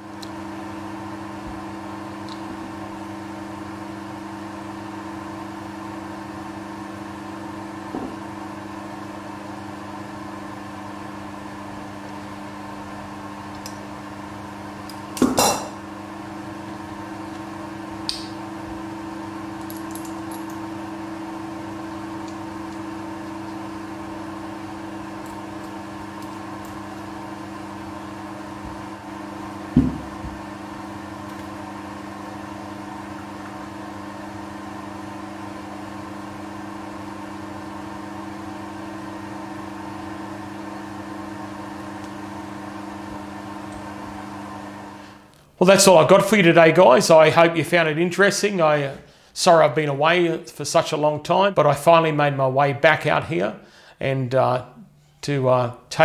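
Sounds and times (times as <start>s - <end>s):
steady hum: 7.2s - 37.2s.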